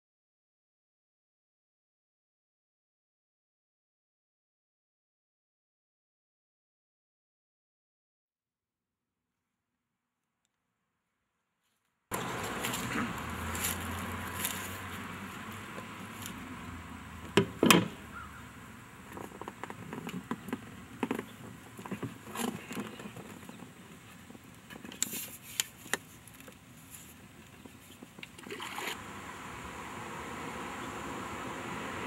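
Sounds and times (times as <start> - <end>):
steady hiss: 29.0 - 32.0.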